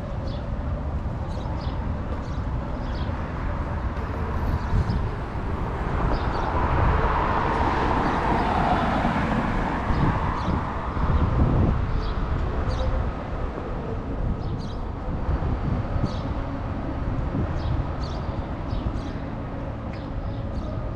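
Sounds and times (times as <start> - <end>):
low rumble of traffic: 0.0 - 20.9
vehicle passing: 3.9 - 12.0.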